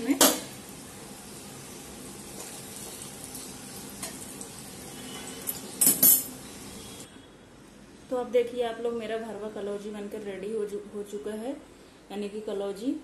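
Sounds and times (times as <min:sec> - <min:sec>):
oil sizzling in a pan: 0:00.0 - 0:07.1.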